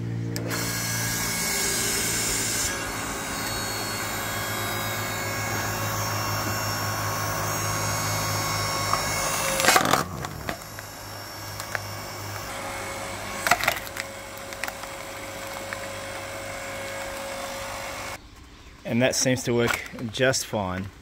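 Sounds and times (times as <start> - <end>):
log splitter motor whining: 0.0 - 18.2
log splitting with sharp cracks: 8.8 - 12.5, 13.3 - 17.2.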